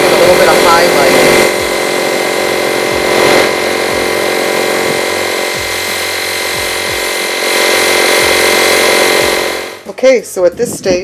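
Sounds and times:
air compressor running: 0.0s - 10.9s
airbrush spraying hiss: 0.2s - 9.8s.

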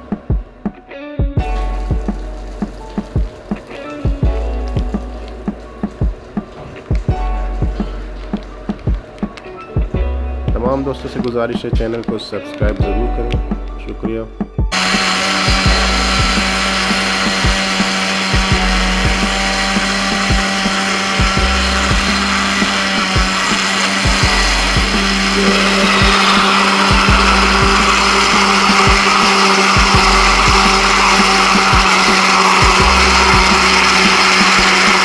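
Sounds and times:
blender running: 14.7s - 35.0s.

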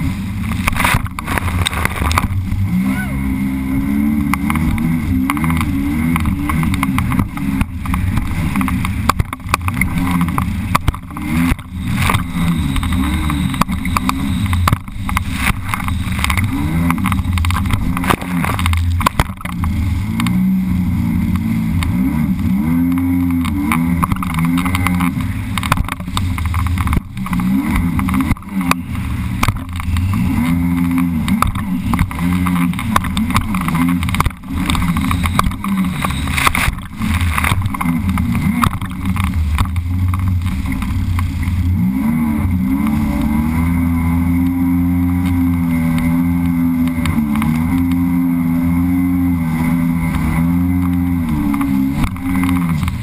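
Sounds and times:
hull slapping on waves: 0.0s - 2.7s, 4.2s - 20.4s, 21.2s - 41.7s
watercraft engine revving: 0.0s - 53.0s.

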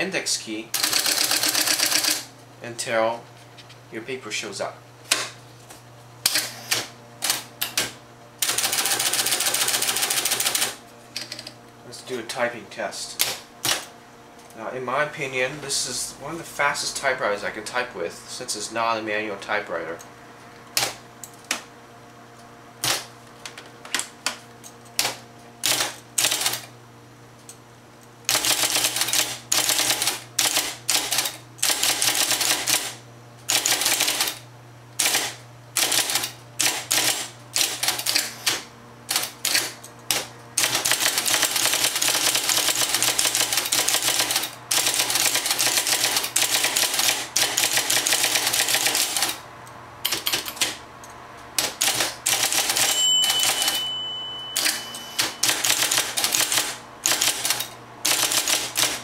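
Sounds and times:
electric typewriter typing: 0.7s - 2.3s, 6.3s - 11.5s, 13.2s - 13.9s, 22.8s - 23.1s, 25.0s - 26.7s, 28.3s - 34.4s, 35.0s - 49.4s, 50.0s - 50.8s, 51.6s - 59.0s
typewriter motor hum: 0.7s - 2.3s, 6.2s - 11.6s, 13.2s - 13.9s, 22.8s - 23.1s, 25.0s - 26.8s, 28.2s - 34.4s, 35.0s - 49.4s, 51.6s - 53.8s, 54.6s - 59.0s.

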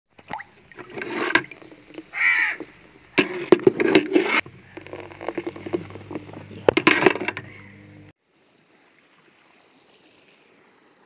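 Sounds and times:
metal ladle scraping in bucket: 0.7s - 8.1s
crow cawing: 2.1s - 2.7s, 7.5s - 7.9s.

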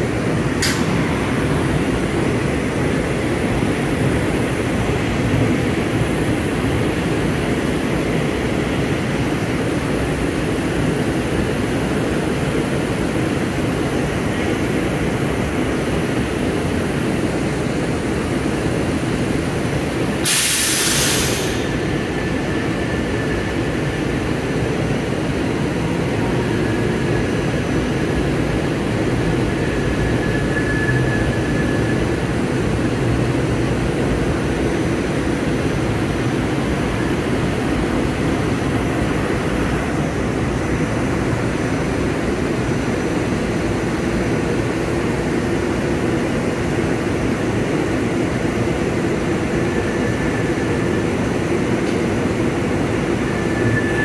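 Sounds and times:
railcar equipment humming: 0.0s - 54.0s
air release hiss: 20.2s - 21.8s.

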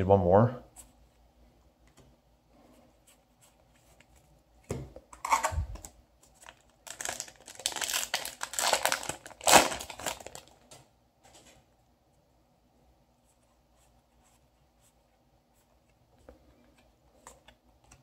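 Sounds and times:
foil wrapper tearing and crinkling: 6.4s - 10.6s.

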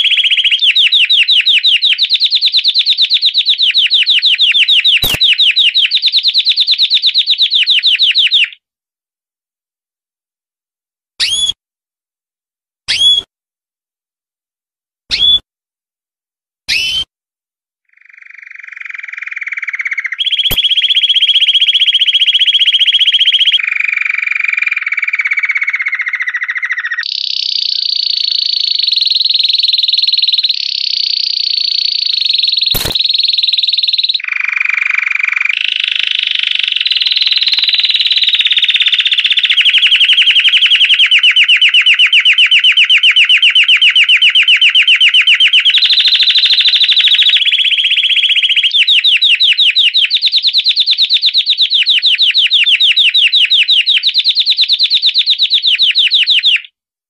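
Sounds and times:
canary singing trills: 0.0s - 8.6s, 17.9s - 56.7s
sharp click: 5.0s - 5.3s, 20.5s - 20.7s, 32.7s - 33.4s.

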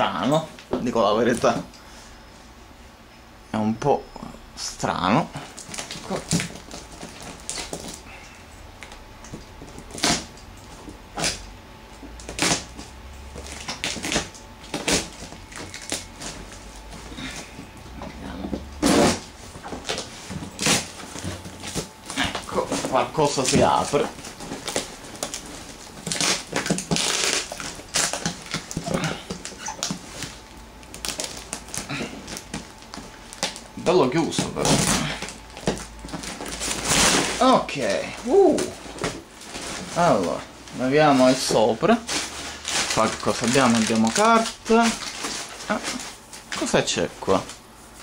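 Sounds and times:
cardboard and tape scraping: 12.2s - 17.4s, 18.5s - 33.6s, 34.2s - 37.5s, 38.7s - 46.7s.

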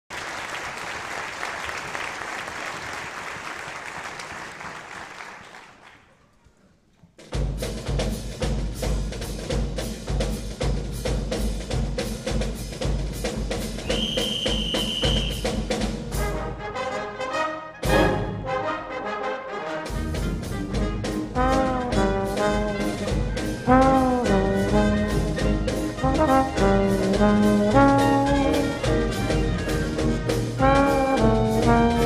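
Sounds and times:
audience applause: 0.1s - 6.3s
drum kit beat: 7.2s - 16.4s, 19.9s - 32.0s
concert band playing jazz: 7.3s - 32.0s.

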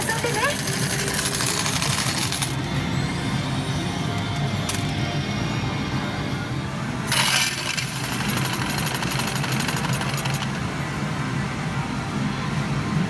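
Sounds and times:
metal tokens clattering: 0.0s - 2.6s
slot parlour din: 0.0s - 11.2s.

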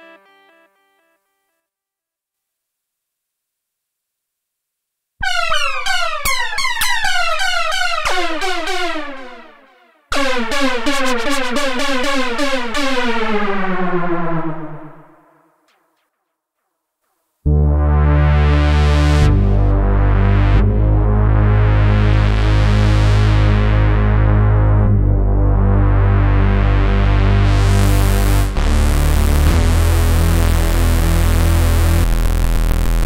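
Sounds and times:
synthesizer bass and arpeggio pattern: 0.0s - 1.2s, 5.2s - 16.0s, 17.5s - 33.0s
synthesizer held note: 0.0s - 1.4s, 5.2s - 15.5s.

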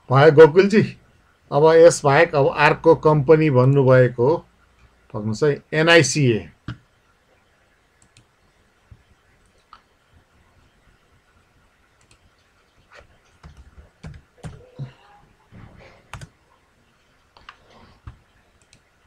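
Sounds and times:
computer keyboard typing: 8.0s - 8.3s, 12.0s - 14.8s, 16.0s - 16.4s, 17.4s - 18.9s.

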